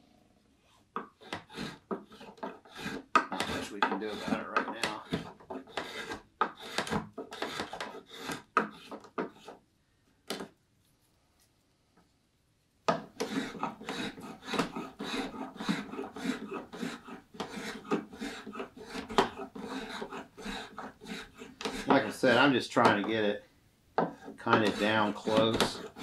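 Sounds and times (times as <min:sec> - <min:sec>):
spokeshave rasping on wood: 0:01.0 - 0:09.6, 0:12.9 - 0:23.3, 0:24.0 - 0:26.0.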